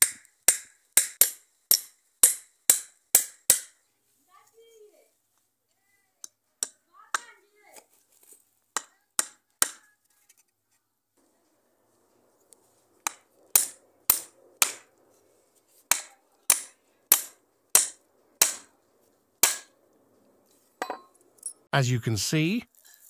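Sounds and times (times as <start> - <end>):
hammer driving a nail into wood: 0.0 - 3.8, 8.8 - 9.8, 13.0 - 14.9, 15.9 - 18.7, 19.4 - 19.7.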